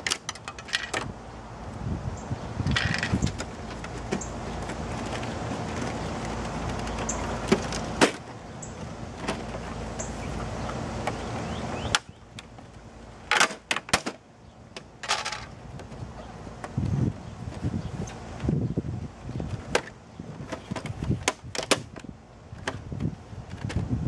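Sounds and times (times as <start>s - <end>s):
plastic clicks and rattles: 0.0s - 1.1s
steady low rumble: 0.0s - 13.3s.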